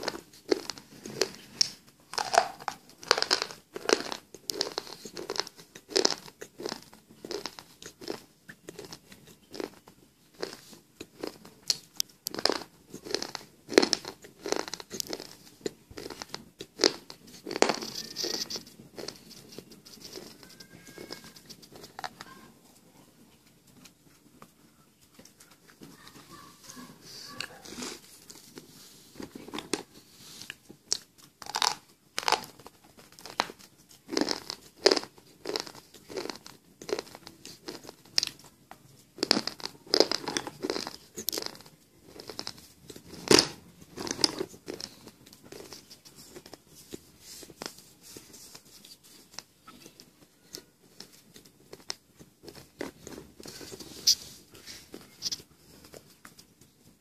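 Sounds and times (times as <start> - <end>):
person crunching slate pencil: 0.0 - 22.4, 29.4 - 38.4, 39.2 - 48.6.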